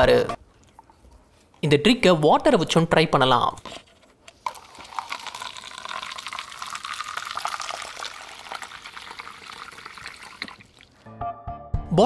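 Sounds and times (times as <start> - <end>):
water splashing into paper cup: 4.4 - 11.1.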